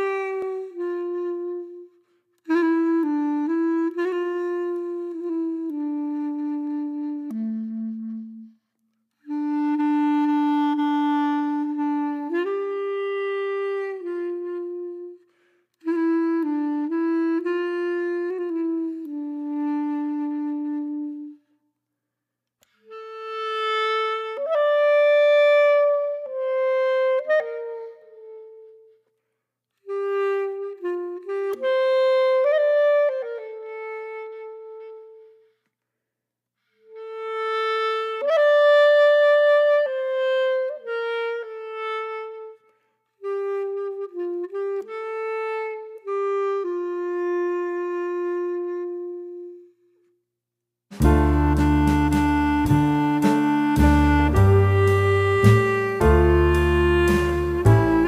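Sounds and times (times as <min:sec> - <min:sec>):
slow solo melody: 0:51.0 - 0:58.0.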